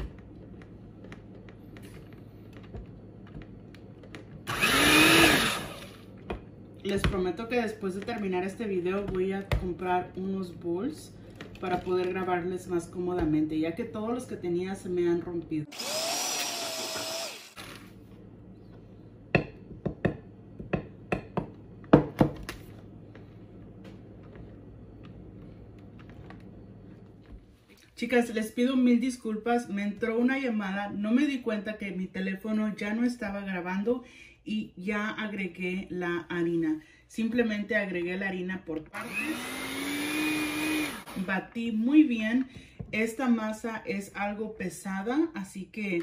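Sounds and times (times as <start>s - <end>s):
electric hand mixer whirring: 4.4s - 6.1s, 15.7s - 17.8s, 38.9s - 41.3s.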